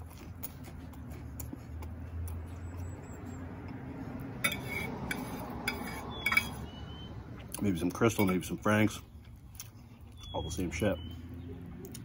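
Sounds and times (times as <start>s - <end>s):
fork clinking on ceramic plate: 4.4s - 6.6s.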